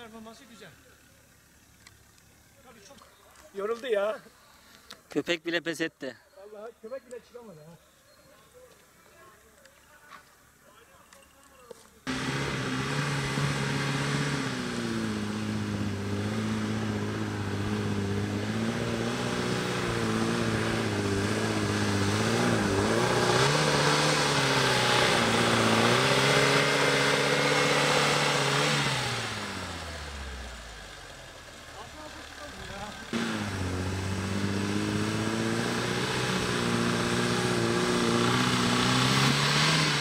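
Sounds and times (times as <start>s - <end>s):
engine running at high revs: 12.1s - 31.2s, 33.1s - 40.0s.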